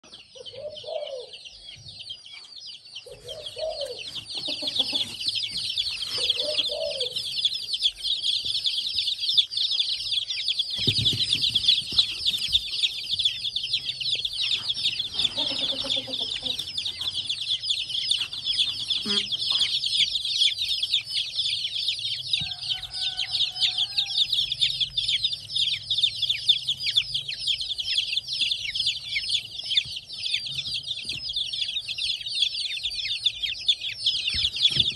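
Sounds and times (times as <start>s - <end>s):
baby chicks peeping: 0.0s - 34.9s.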